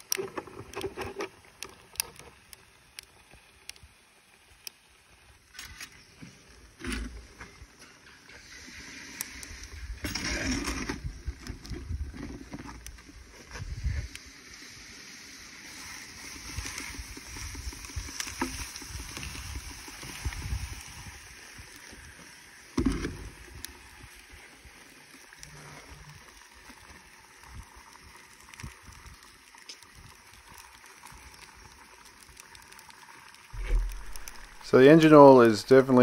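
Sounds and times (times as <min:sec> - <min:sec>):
liquid nitrogen hissing: 0:00.0 - 0:36.0
low bump: 0:33.6 - 0:34.8.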